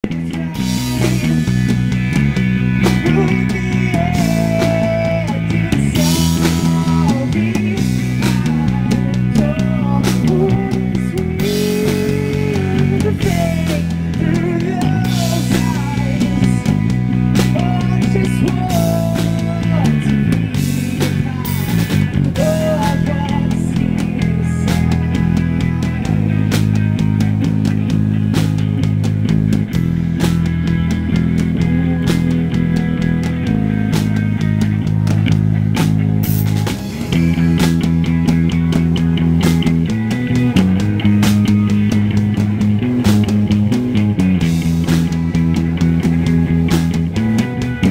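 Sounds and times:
man singing: 0.0 - 1.8, 2.7 - 27.2
drum kit with cymbals: 0.0 - 47.9
electric bass: 0.0 - 47.9
electric guitar: 0.0 - 47.9.

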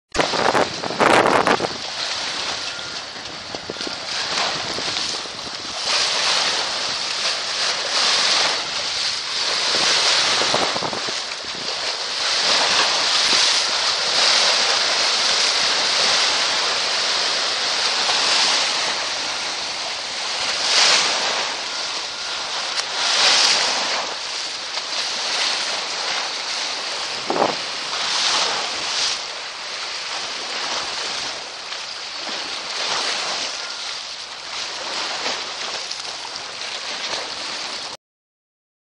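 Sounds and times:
wind buffeting microphone: 0.1 - 24.4, 25.0 - 29.4
waves slapping against bank: 0.1 - 38.0.

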